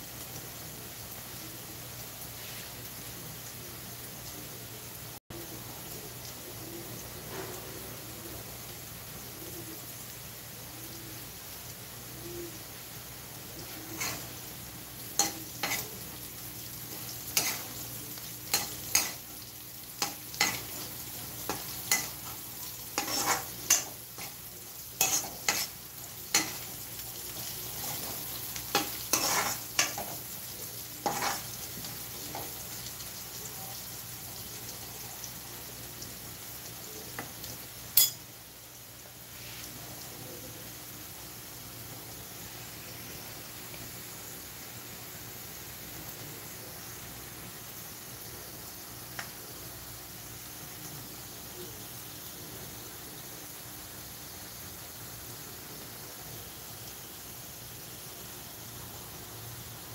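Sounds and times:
vegetables sizzling in oil: 0.0s - 59.9s
spoon clinking and scraping pan: 13.9s - 14.3s, 15.2s - 15.9s, 17.3s - 17.8s, 18.5s - 19.2s, 20.0s - 20.8s, 21.4s - 24.4s, 25.0s - 26.7s, 28.8s - 30.2s, 31.1s - 31.5s, 38.0s - 38.2s.

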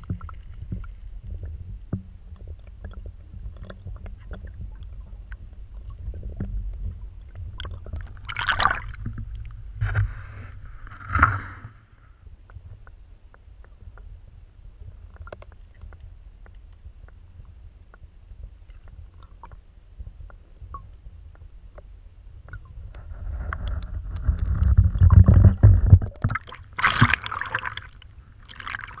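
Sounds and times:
underwater river current rumble: 0.0s - 29.0s
water splashing and sloshing: 0.0s - 29.0s
water rushing: 7.6s - 9.6s, 26.2s - 29.0s.

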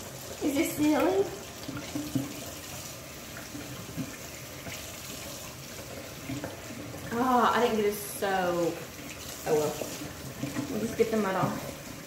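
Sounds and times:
faucet running into steel sink: 0.0s - 12.0s
water splashing on dog: 0.0s - 12.0s.

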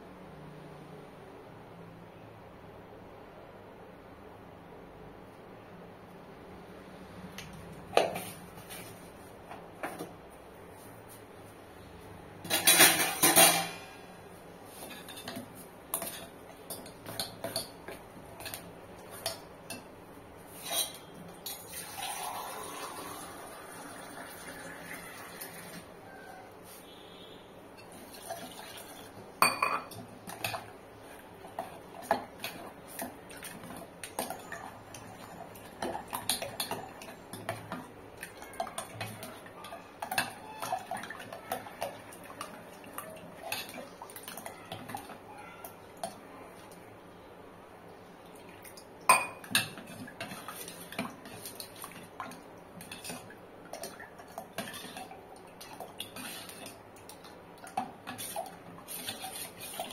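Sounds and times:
ladle scraping metal pot: 20.5s - 21.6s, 56.0s - 56.8s, 58.0s - 59.9s.

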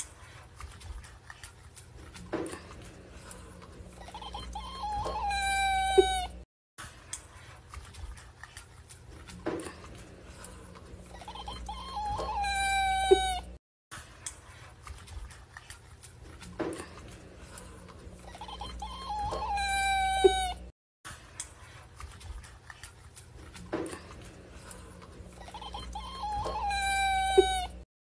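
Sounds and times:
cat whining call: 4.1s - 6.4s, 11.3s - 13.6s, 18.4s - 20.7s, 25.5s - 27.8s.

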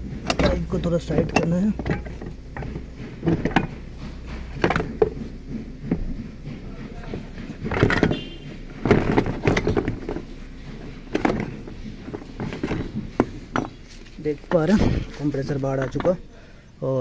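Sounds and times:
metal and plastic knocking and scraping: 0.0s - 16.5s.

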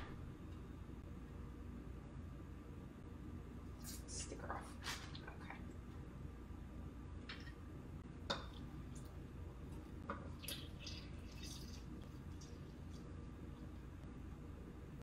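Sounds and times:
juice dripping into bowl: 8.3s - 13.9s.

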